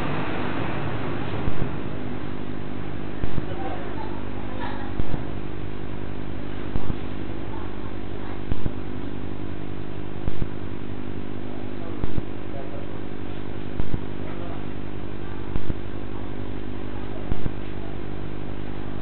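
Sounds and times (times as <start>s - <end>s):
steady electrical hum: 0.0s - 19.0s
sharp repeating click: 1.4s - 1.8s, 3.2s - 3.5s, 5.0s - 5.3s, 6.7s - 7.0s, 8.5s - 8.8s, 10.2s - 10.6s, 12.0s - 12.3s, 13.8s - 14.1s, 15.5s - 15.8s.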